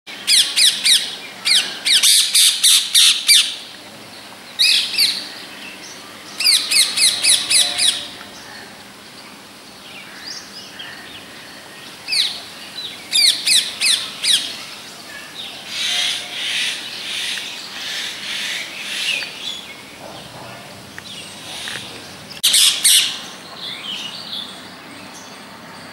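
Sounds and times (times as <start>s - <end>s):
parakeet calling: 0.3s - 3.6s, 6.4s - 8.6s, 13.1s - 14.6s, 21.0s - 23.3s.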